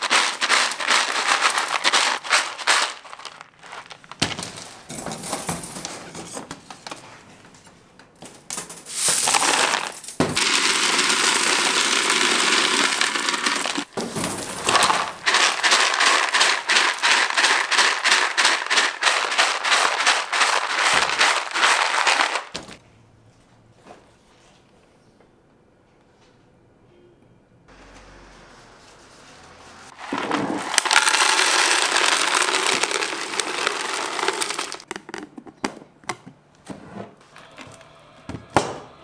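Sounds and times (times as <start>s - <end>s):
candy pieces rattling in plastic container: 0.0s - 5.7s, 8.9s - 22.8s, 29.9s - 35.0s.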